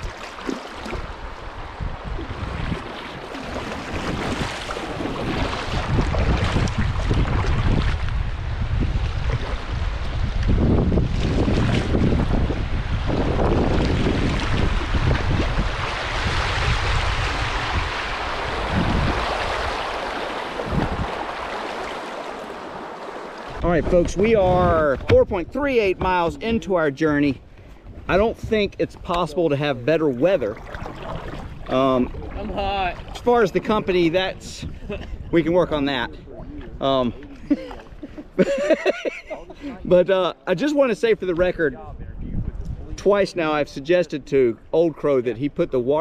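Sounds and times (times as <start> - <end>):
paddle splashing in river water: 0.0 - 23.6, 30.1 - 33.8
wind rumbling on microphone: 0.8 - 21.8, 23.4 - 29.4, 30.3 - 38.4, 41.3 - 43.3.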